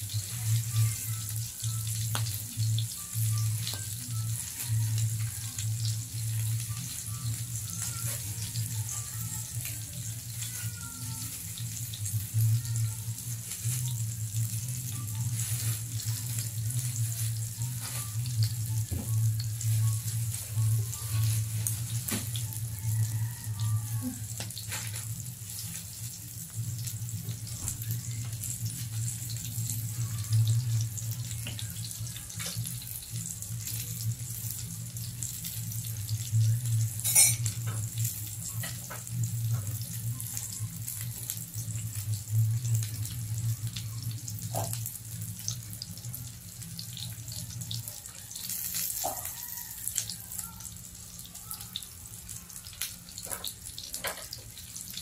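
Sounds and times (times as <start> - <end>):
meat sizzling in grill pan: 0.0 - 55.0.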